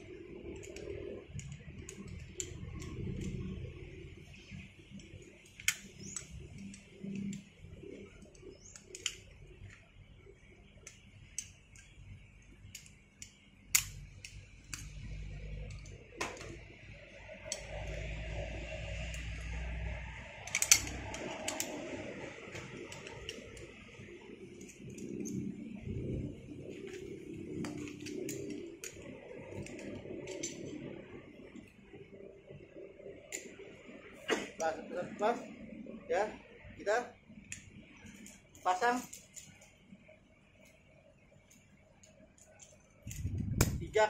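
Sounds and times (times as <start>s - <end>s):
metal carabiners clicking and clinking: 0.3s - 3.9s, 17.3s - 25.9s, 26.6s - 31.0s, 37.5s - 39.8s
low rumble: 14.7s - 34.2s, 43.1s - 44.0s.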